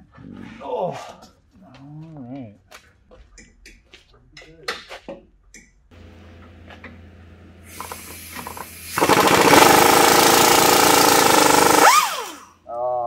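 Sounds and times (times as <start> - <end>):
pneumatic impact wrench hammering: 7.7 - 12.5.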